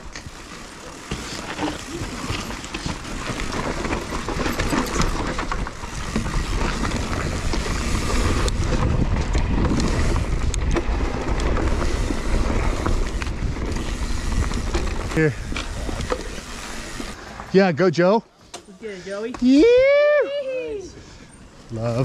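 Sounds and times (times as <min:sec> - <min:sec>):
bike rattling and knocking: 0:00.0 - 0:17.2
bike tyres rolling over dirt and stones: 0:00.0 - 0:18.0
wind buffeting microphone: 0:05.6 - 0:17.0.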